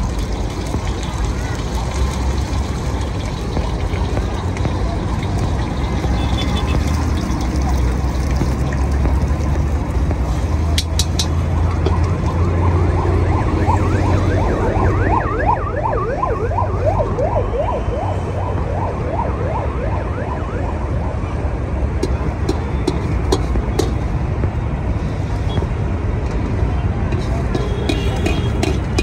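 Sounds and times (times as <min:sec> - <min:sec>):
siren wailing: 0:11.5 - 0:21.8.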